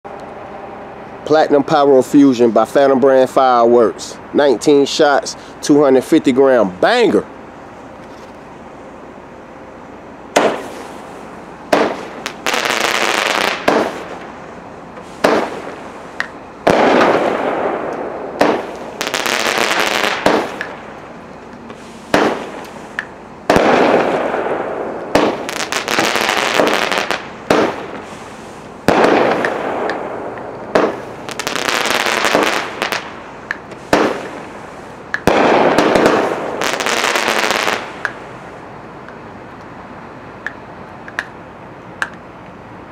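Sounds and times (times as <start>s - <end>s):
crackling hiss of fireworks: 0.2s - 42.9s
firework bangs: 10.3s - 14.4s, 15.0s - 21.0s, 21.7s - 38.3s.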